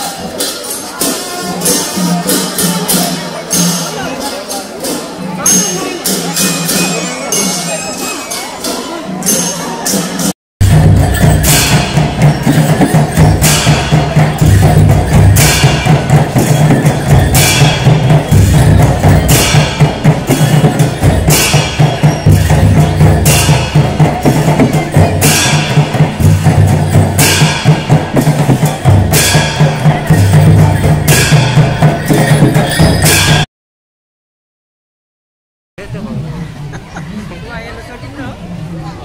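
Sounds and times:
drums beating dance rhythm: 0:04.8 - 0:33.4
cymbal crash: 0:10.6 - 0:33.4.

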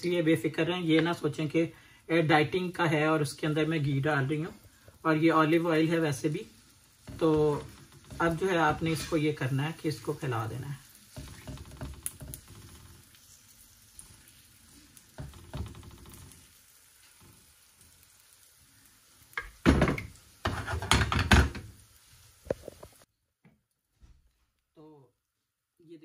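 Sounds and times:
faint frying sizzle: 0:00.0 - 0:23.1
spoon spreading batter in pan: 0:07.0 - 0:09.5, 0:11.0 - 0:17.2
pan knocking on metal grate: 0:20.7 - 0:21.6.

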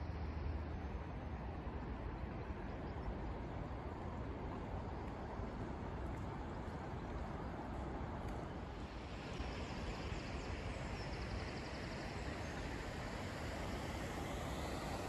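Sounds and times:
even hiss: 0:09.1 - 0:15.0.

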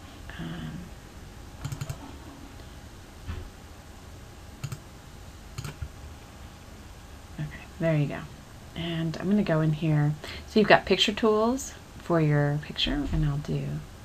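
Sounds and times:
soft low hum: 0:00.0 - 0:14.0
computer mouse clicking: 0:01.6 - 0:02.0, 0:04.6 - 0:04.8, 0:05.6 - 0:05.9.

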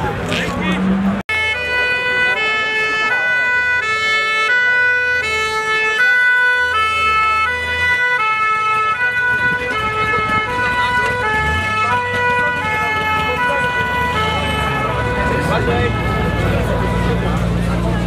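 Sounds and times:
two-tone hi-lo siren: 0:01.3 - 0:17.2.

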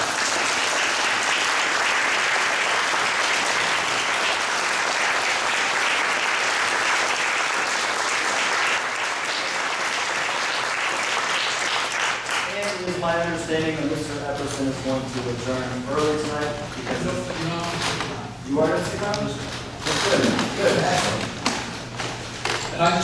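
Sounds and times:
audience clapping: 0:00.0 - 0:13.3.

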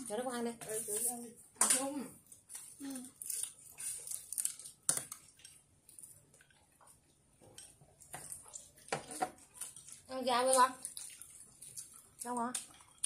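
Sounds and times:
chewing mouth sounds: 0:07.6 - 0:13.0.

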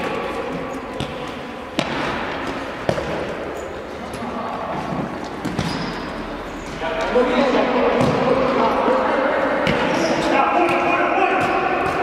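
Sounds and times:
ball kicked and bouncing: 0:08.0 - 0:08.4.

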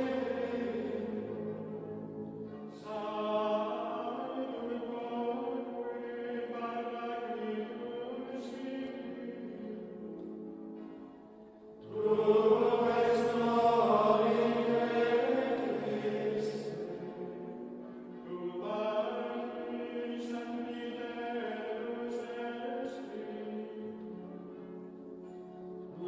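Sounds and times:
choir singing chant-like notes: 0:00.0 - 0:25.3.

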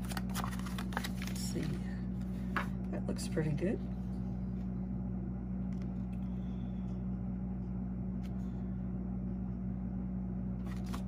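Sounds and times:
paper being handled: 0:00.0 - 0:01.8, 0:10.6 - 0:11.0
steady low hum: 0:00.0 - 0:11.0.

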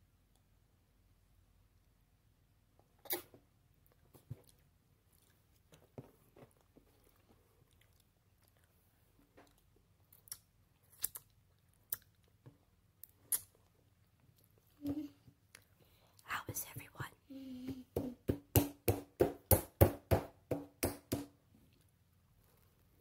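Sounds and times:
mouth and lip smacks: 0:03.0 - 0:03.4, 0:10.2 - 0:12.3, 0:13.0 - 0:13.6
person chewing: 0:06.6 - 0:12.4, 0:13.0 - 0:14.7.

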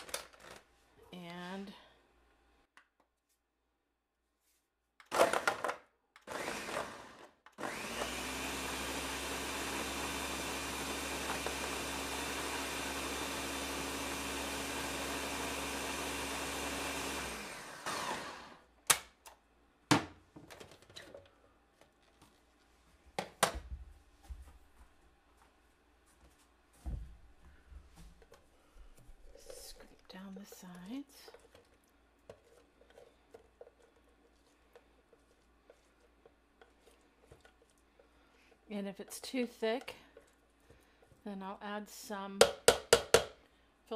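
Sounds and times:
blender running: 0:05.1 - 0:18.7.

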